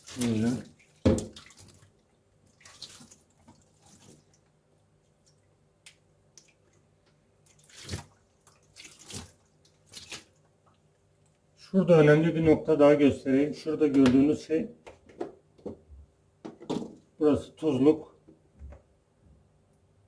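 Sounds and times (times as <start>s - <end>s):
water dripping and splashing: 0.0s - 11.4s.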